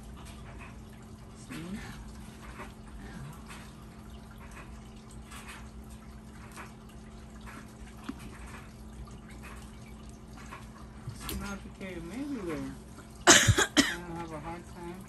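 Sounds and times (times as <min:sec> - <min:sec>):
low steady hum: 0:00.0 - 0:15.0
water trickling: 0:00.0 - 0:15.0
light clicks and rustles: 0:01.9 - 0:11.7.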